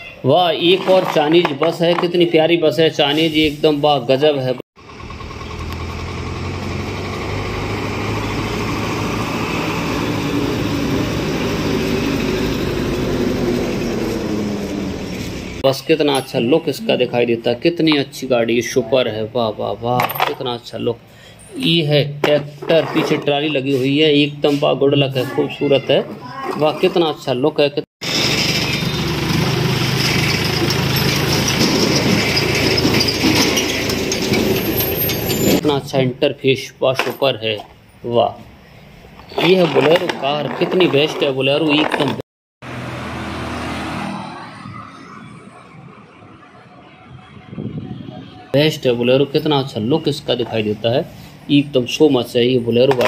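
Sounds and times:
bus engine passing by: 4.8s - 15.6s, 28.0s - 35.6s, 42.6s - 45.8s.

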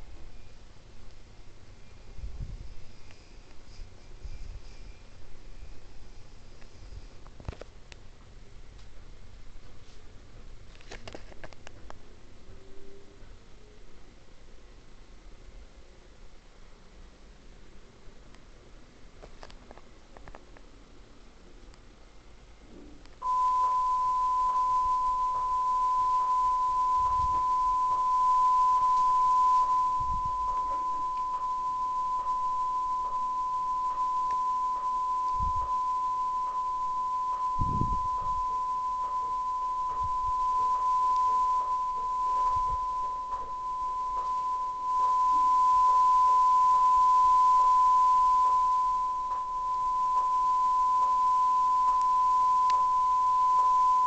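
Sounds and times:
steady test tone: 23.2s - 54.0s.

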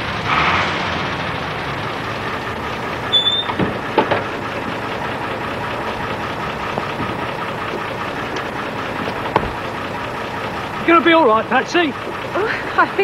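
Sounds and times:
van engine idling: 0.0s - 13.0s
brief squeak: 3.1s - 3.7s
short knocks: 8.4s - 9.6s.

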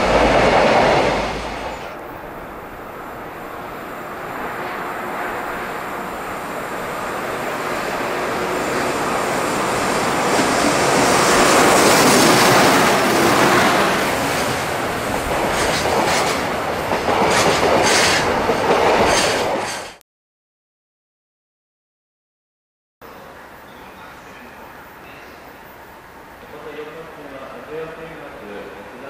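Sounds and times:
train wheels on rails: 0.0s - 20.0s.

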